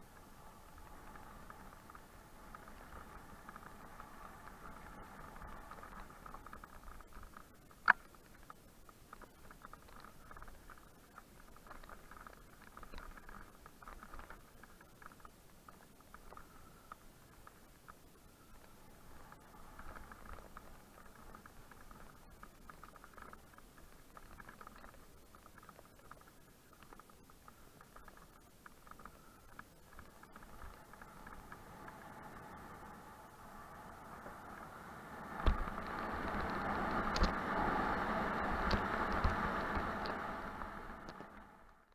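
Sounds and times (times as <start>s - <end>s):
mountain bike rattling downhill: 0.0s - 41.9s
wind rushing over microphone: 30.1s - 41.6s.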